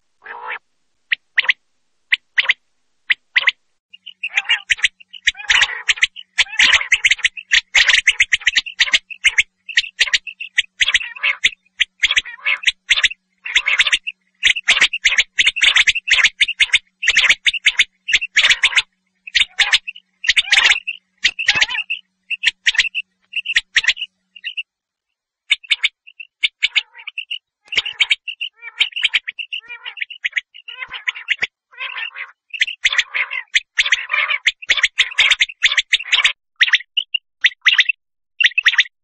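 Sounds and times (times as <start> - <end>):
quail calling: 0.2 - 24.7, 25.4 - 38.9.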